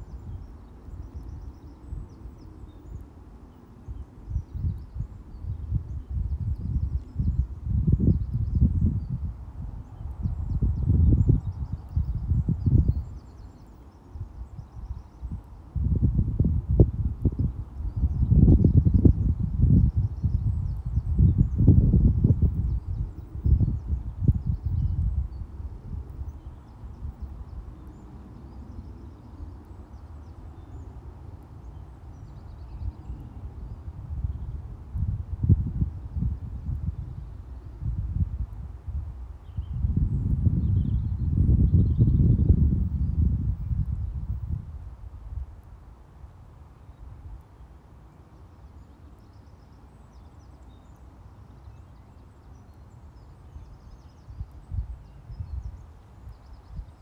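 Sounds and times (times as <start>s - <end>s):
small birds chirping: 0.0s - 38.6s, 46.8s - 57.0s
wind buffeting microphone: 0.0s - 47.4s, 53.4s - 57.0s.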